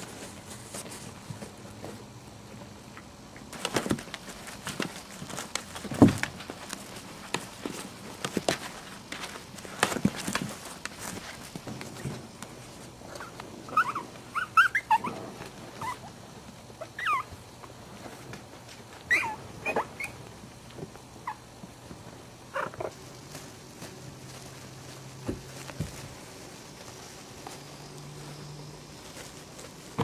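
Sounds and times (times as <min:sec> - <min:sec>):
puppies squeaking and yipping: 0:13.2 - 0:16.1, 0:16.8 - 0:17.3, 0:19.1 - 0:20.2.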